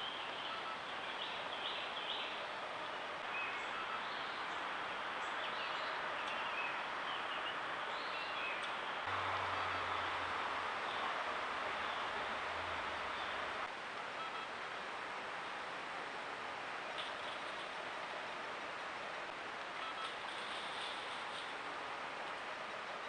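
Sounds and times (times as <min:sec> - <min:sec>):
faint bird chirps: 0:00.0 - 0:04.6
low steady hum: 0:00.0 - 0:23.0
microphone hiss: 0:00.0 - 0:23.0.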